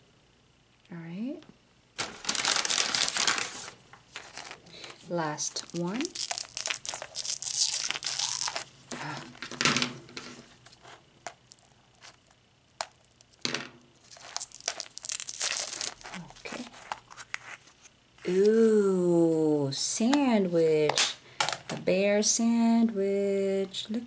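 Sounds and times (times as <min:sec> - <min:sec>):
plastic wrap crinkling and tearing: 0:02.0 - 0:09.5, 0:14.0 - 0:17.7
scissors cutting plastic: 0:05.6 - 0:09.1.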